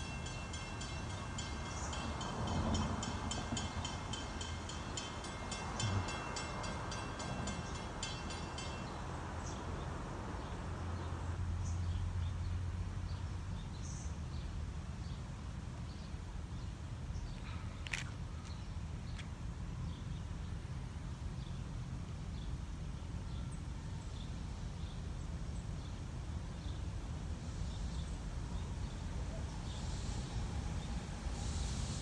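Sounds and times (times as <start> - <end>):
crossing bell ringing rapidly: 0.0 - 9.4.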